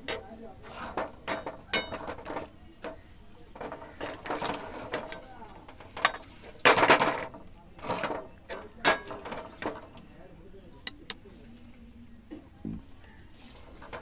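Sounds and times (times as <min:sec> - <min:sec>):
metal spatula scraping in wok: 0:00.0 - 0:10.0
steel dishes clattering: 0:00.0 - 0:10.0, 0:13.6 - 0:14.0.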